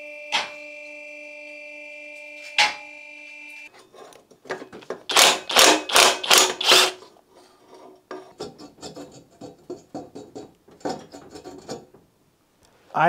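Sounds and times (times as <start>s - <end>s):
ratchet wrench clicking: 5.1s - 7.0s.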